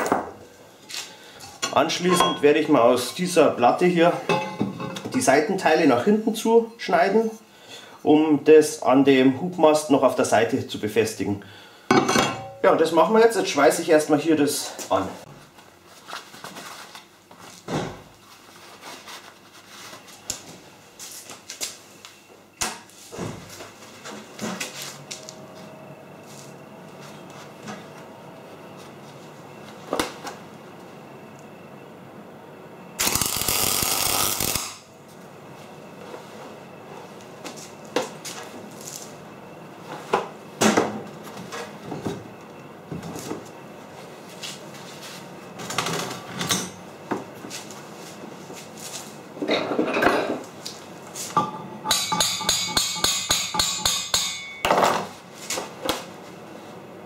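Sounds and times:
welder arc crackling: 0:33.0 - 0:34.8
hammer striking steel: 0:51.4 - 0:54.8.

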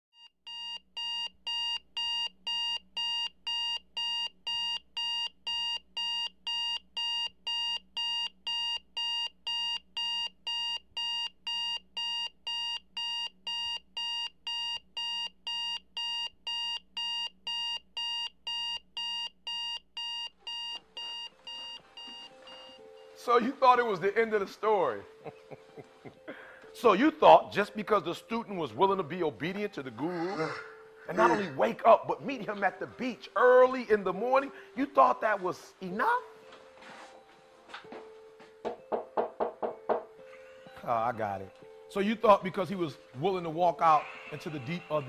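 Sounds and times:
digital alarm clock beeping: 0:00.2 - 0:23.2.

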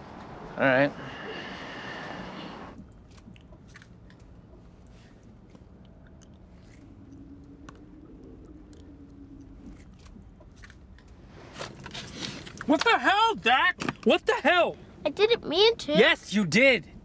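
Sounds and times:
faint low hum: 0:00.0 - 0:12.6
chewing and crunching: 0:02.8 - 0:12.8.

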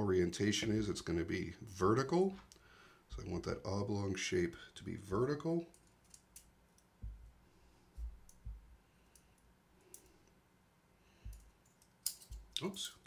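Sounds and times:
light sharp clicks of small parts: 0:05.7 - 0:06.9, 0:08.2 - 0:10.4, 0:11.2 - 0:12.8
soft low thumps: 0:07.0 - 0:08.8.

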